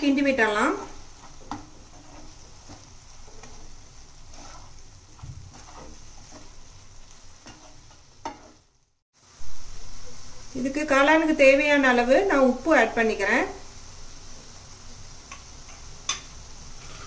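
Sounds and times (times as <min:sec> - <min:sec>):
light sizzle: 0:00.0 - 0:17.0
spatula scraping frying pan: 0:00.4 - 0:08.8, 0:15.3 - 0:17.0.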